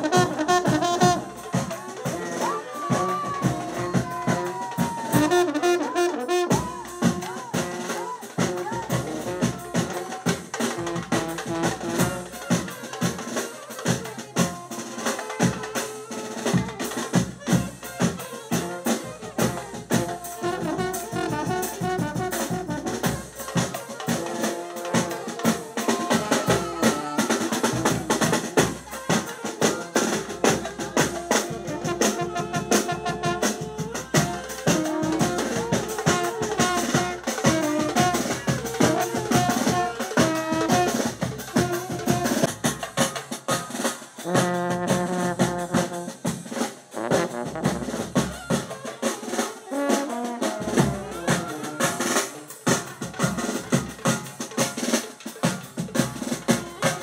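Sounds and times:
saxophone and brass horns: 0.0s - 57.0s
bass drum beaten hard: 44.2s - 46.0s.

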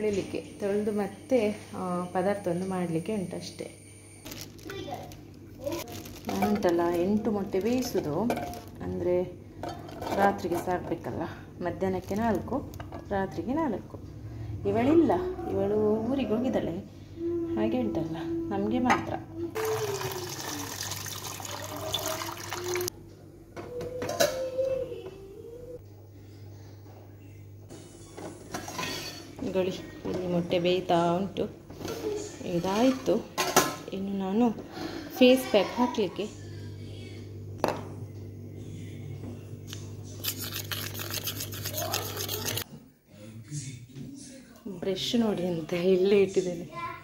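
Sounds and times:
tap water running into bowl: 19.6s - 22.9s
spoon scraping metal bowl: 40.2s - 42.6s.

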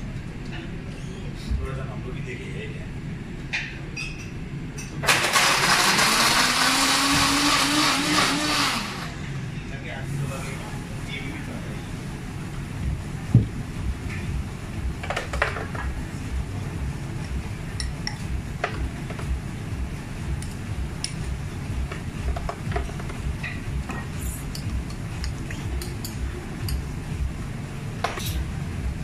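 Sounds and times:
steady low rumble: 9.1s - 15.1s, 15.8s - 29.0s.

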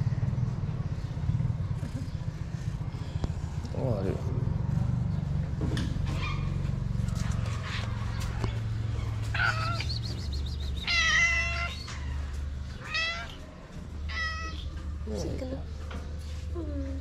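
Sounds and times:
cat meowing: 9.3s - 10.0s, 10.8s - 12.2s, 12.8s - 13.4s, 14.1s - 14.8s.

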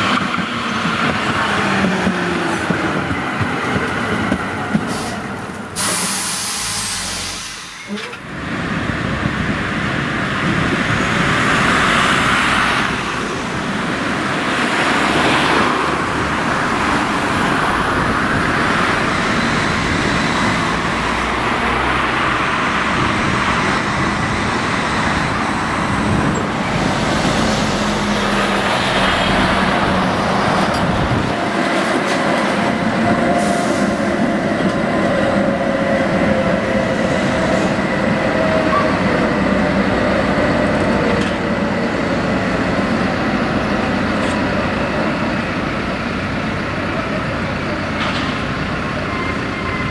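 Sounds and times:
tram running on rails: 0.0s - 49.9s
cars passing: 7.0s - 49.9s.

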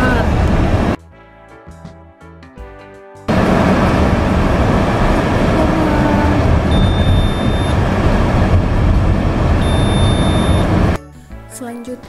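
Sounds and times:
road and engine rumble: 0.0s - 1.0s, 3.3s - 11.0s
high electronic beeps: 6.7s - 7.8s, 9.6s - 10.7s.

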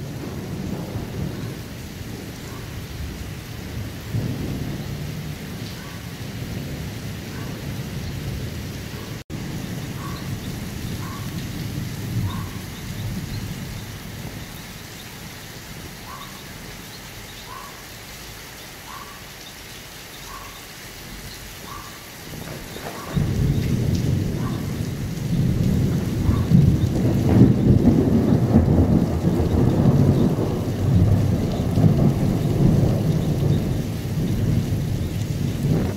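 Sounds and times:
loud thunder clap: 0.0s - 5.6s, 22.3s - 35.9s
thunder rumbling: 0.0s - 16.8s, 21.7s - 35.9s
steady rain: 0.0s - 35.9s.

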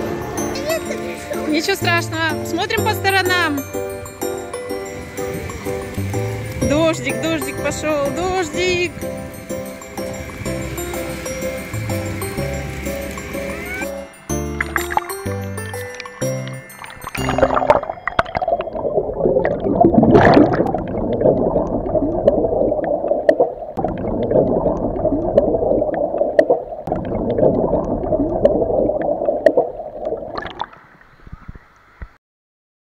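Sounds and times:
underwater bubbling and gurgling: 4.8s - 31.7s
sharp underwater clicks: 20.1s - 32.2s.

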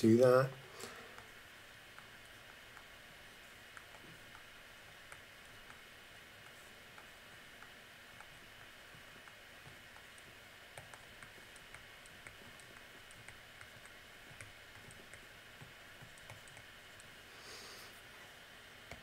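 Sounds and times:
stylus tapping on tablet screen: 3.5s - 17.1s.

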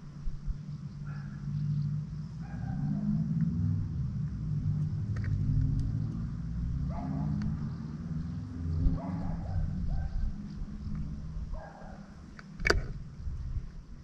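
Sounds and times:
steady low rumble: 0.0s - 14.0s
distant dog barking: 1.0s - 1.5s, 2.4s - 3.4s, 6.8s - 7.6s, 8.9s - 10.4s, 11.5s - 12.2s.

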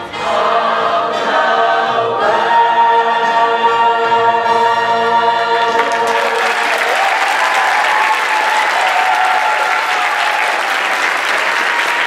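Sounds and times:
audience applauding: 5.6s - 12.0s
people cheering: 5.6s - 12.0s.

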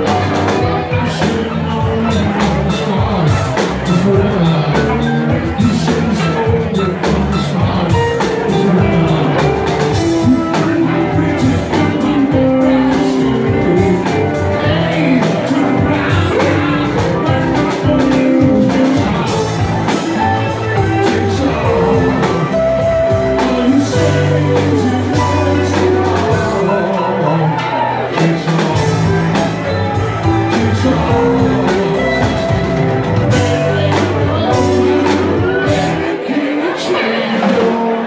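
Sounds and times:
drum kit beat: 0.0s - 36.3s
bass guitar: 0.0s - 38.0s
electric guitars: 0.0s - 38.0s
keyboard: 0.0s - 38.0s.

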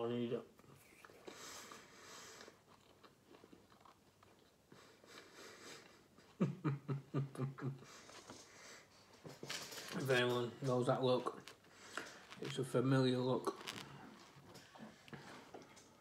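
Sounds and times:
man chewing: 0.6s - 6.4s
man chuckling: 5.6s - 8.1s.

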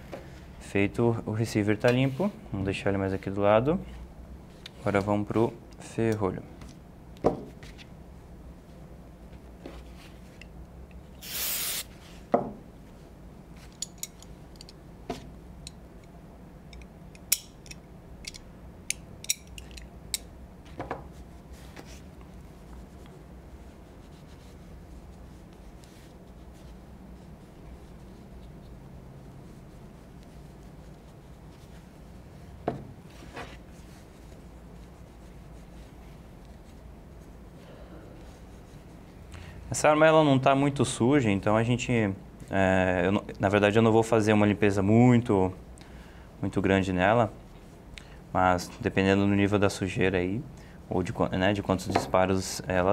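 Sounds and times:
aerosol can spraying: 11.2s - 11.9s.

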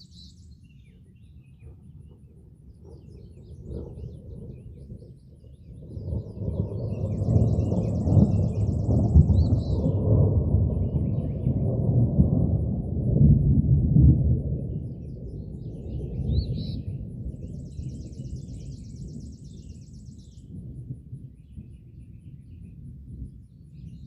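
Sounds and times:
thunder rolling: 1.6s - 19.7s.

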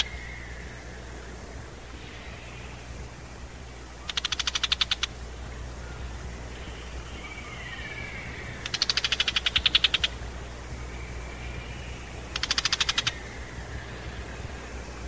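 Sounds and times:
bird rattling alarm chatter: 4.1s - 5.1s, 8.6s - 10.2s, 12.3s - 13.2s.

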